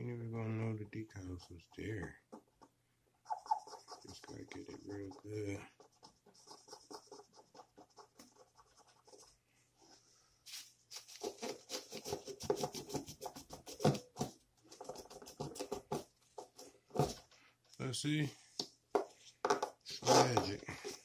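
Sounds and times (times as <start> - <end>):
marker scratching on toy car: 3.3 - 9.4, 11.0 - 14.0
tissue rubbing and crinkling: 10.1 - 11.9.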